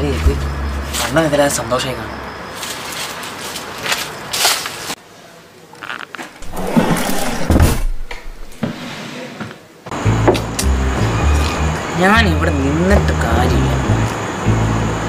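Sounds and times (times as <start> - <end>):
wooden drawer scraping open: 6.4 - 9.6.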